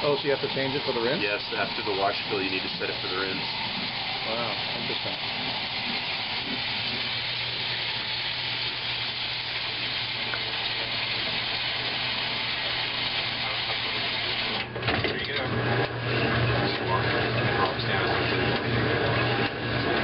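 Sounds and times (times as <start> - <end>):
washing machine water hiss: 0.0 - 14.6
low motor hum: 0.6 - 20.0.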